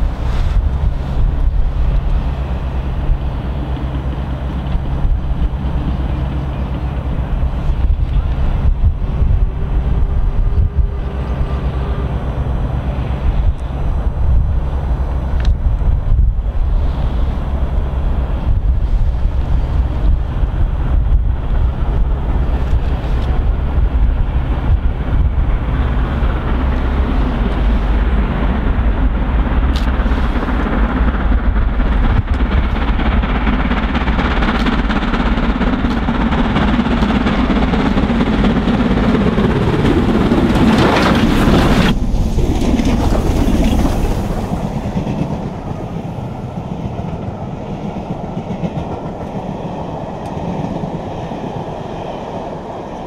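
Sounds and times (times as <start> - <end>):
steam locomotives working hard: 0.0 - 53.0
carriages rolling past: 21.6 - 49.5.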